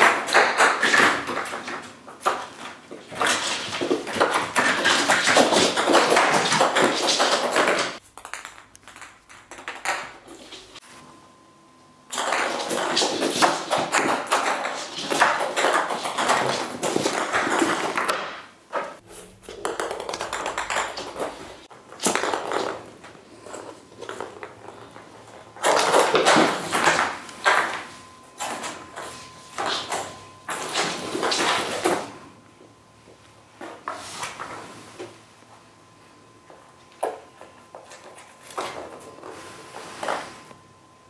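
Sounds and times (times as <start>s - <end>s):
toy ball rolling on wooden floor: 19.4s - 27.7s.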